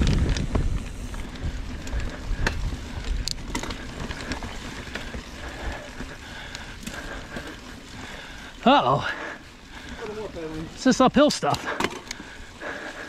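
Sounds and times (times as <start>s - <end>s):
wind rumble on microphone: 0.0s - 6.0s
bike clicks and rattles: 0.0s - 13.0s
bike tyre noise on dirt: 0.0s - 13.0s.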